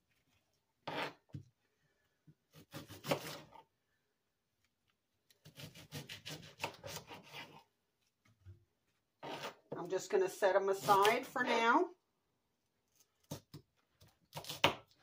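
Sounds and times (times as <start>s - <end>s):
knife slicing on cutting board: 2.5s - 3.6s, 5.4s - 7.6s.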